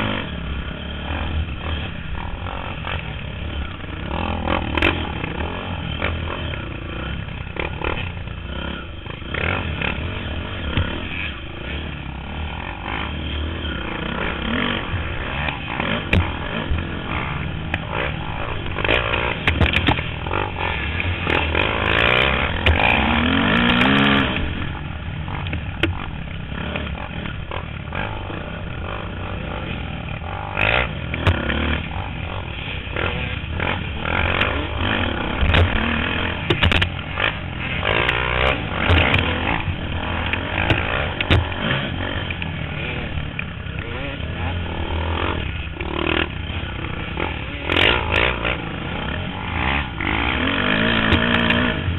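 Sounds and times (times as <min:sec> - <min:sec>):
dirt bike engine revving: 0:00.0 - 0:51.9
bike knocks and rattles over bumps: 0:13.8 - 0:24.6, 0:25.2 - 0:51.9.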